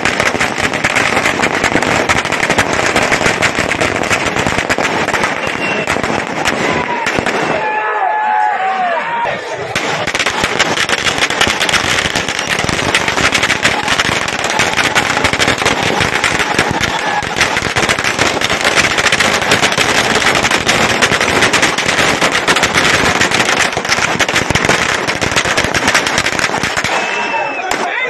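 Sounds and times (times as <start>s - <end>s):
firecrackers crackling: 0.0s - 7.8s, 9.5s - 28.0s.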